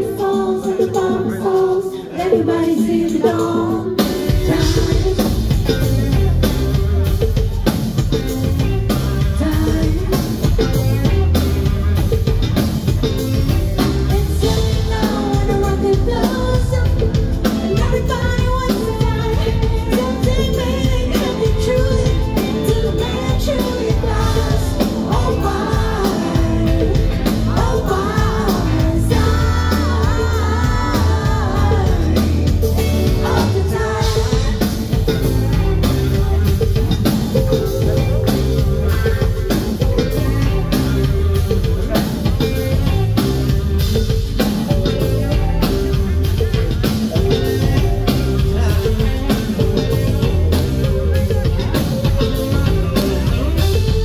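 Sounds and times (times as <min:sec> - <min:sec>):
lead vocal singing: 0:00.0 - 0:06.5, 0:13.8 - 0:42.7, 0:46.5 - 0:54.0
live rock band: 0:00.0 - 0:54.0.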